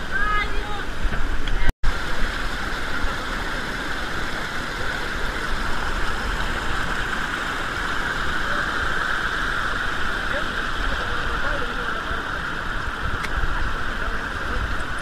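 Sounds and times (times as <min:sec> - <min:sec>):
river rapids rushing: 0:00.0 - 0:15.0.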